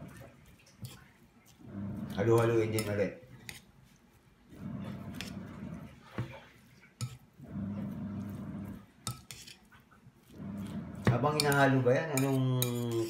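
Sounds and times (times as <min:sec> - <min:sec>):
hands squishing ground meat: 0:00.0 - 0:13.0.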